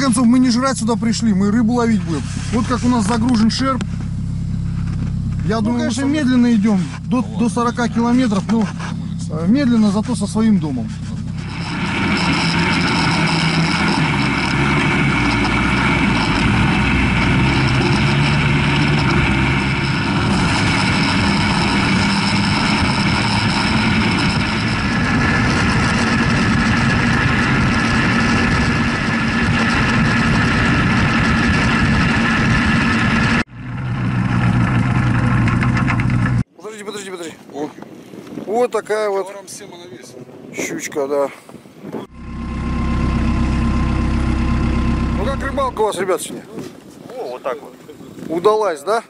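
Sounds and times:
diesel engine running: 0:00.0 - 0:36.5, 0:42.0 - 0:46.3
wind: 0:00.0 - 0:49.0.

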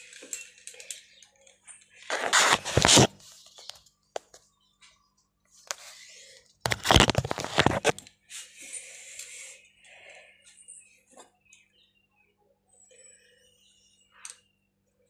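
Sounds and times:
phone rubbing on cloth: 0:02.1 - 0:03.2, 0:06.7 - 0:08.0.

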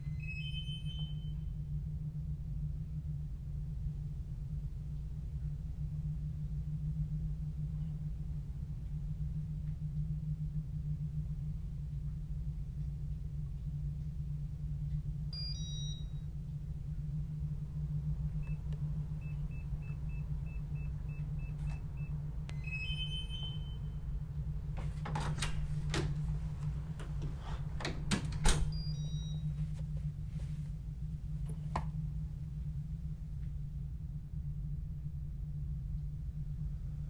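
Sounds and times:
low steady hum: 0:00.0 - 0:37.0
door lock wake-up beep: 0:00.1 - 0:01.3, 0:15.4 - 0:16.1, 0:22.5 - 0:23.9, 0:28.4 - 0:29.5
two-tone lock beep: 0:15.4 - 0:16.0, 0:22.5 - 0:23.9, 0:28.5 - 0:29.5.

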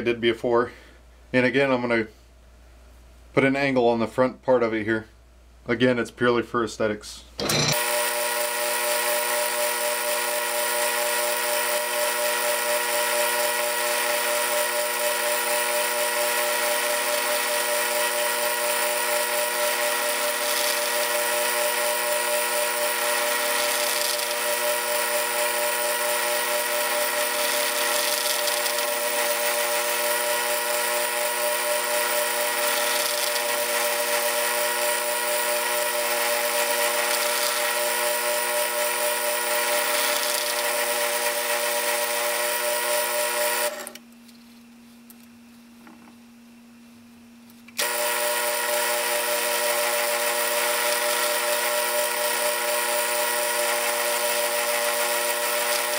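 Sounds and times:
cutting tool scraping metal: 0:07.4 - 0:08.3, 0:16.4 - 0:42.2
lathe motor whining: 0:07.4 - 0:44.0, 0:47.8 - 0:55.9.

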